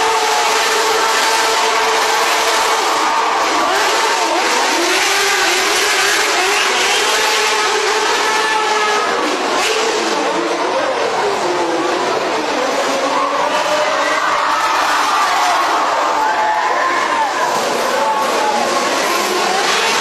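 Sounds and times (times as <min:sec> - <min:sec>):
quad bike engines revving: 0:00.0 - 0:20.0.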